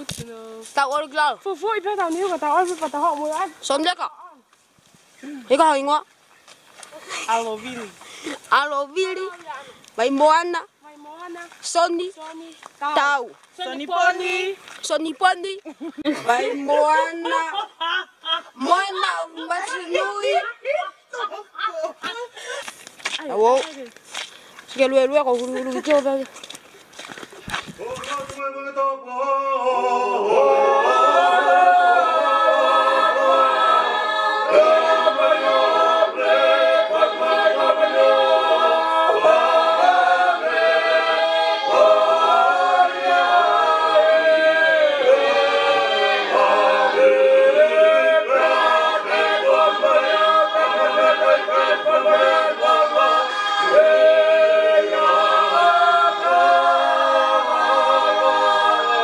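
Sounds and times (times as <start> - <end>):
unaccompanied choir singing: 18.6 - 20.5, 28.4 - 59.0.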